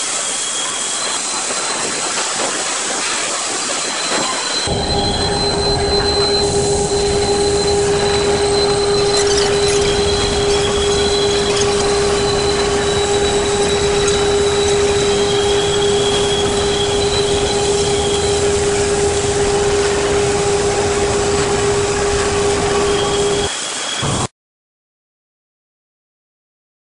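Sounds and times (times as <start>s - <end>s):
machinery hum: 3.5s - 24.3s
machinery roar: 3.5s - 24.3s
faint high whines: 3.7s - 24.3s.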